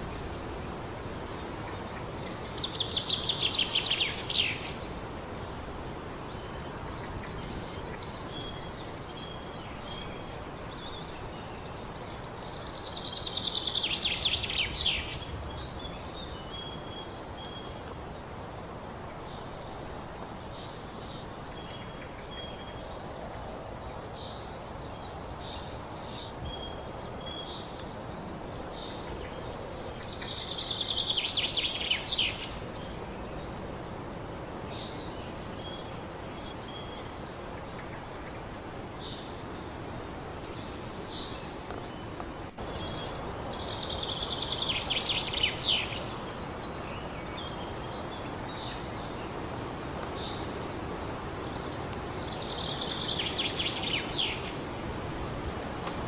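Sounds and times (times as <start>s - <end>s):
songbirds singing: 0.0s - 56.0s
steady outdoor hiss: 0.0s - 56.0s.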